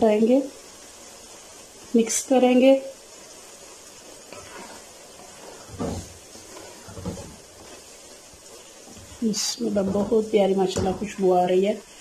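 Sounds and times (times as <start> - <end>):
faint steady hiss: 0.0 - 12.0
wooden spatula scraping metal pot: 4.3 - 11.6.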